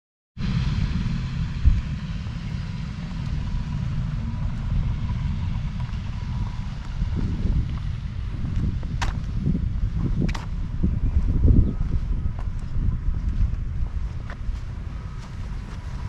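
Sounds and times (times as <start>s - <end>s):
wind buffeting microphone: 0.4s - 16.0s.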